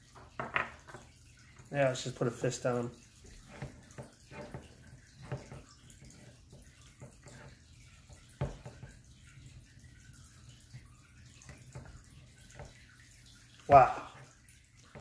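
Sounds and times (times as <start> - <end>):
trickling water: 0.0 - 15.0
aquarium hum: 12.3 - 14.6.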